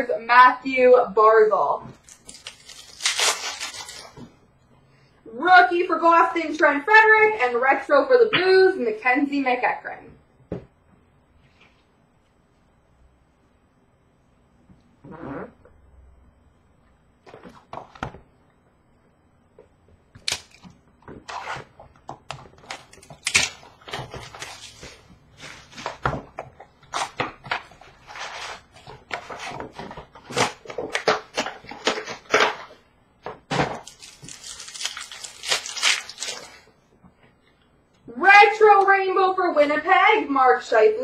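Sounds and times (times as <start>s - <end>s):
plastic wrapper crinkling and tearing: 2.0s - 4.2s, 22.6s - 25.0s, 33.8s - 36.7s
cardboard clicks and snaps: 20.2s - 20.7s.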